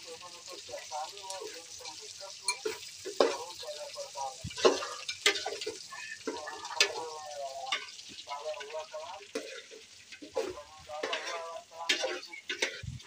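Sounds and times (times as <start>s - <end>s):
food frying in pot: 0.0s - 13.0s
metal spoon clanking against pot: 2.5s - 3.6s, 4.6s - 8.0s, 8.6s - 12.9s.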